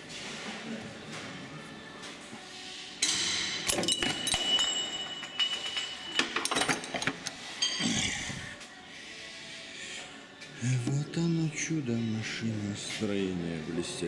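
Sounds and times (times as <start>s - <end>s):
metal tools clanking: 3.0s - 8.1s.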